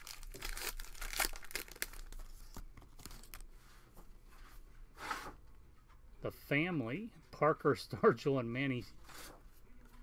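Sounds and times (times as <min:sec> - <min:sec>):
foil wrapper tearing and crinkling: 0:00.0 - 0:02.4.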